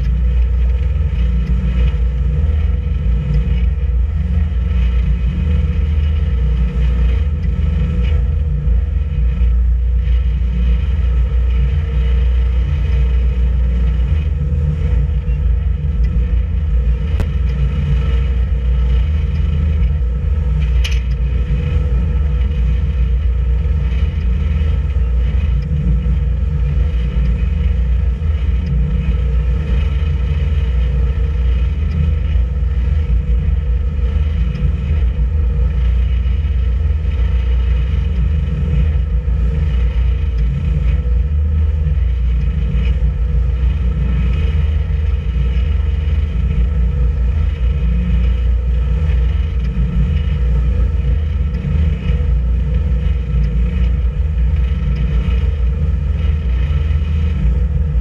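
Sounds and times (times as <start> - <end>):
boat engine rumbling: 0.0 - 58.0
steady hum: 0.0 - 58.0.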